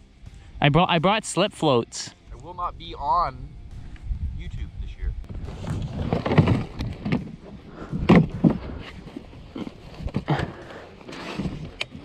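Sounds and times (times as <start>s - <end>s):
plastic cargo box clunks: 5.6s - 12.0s.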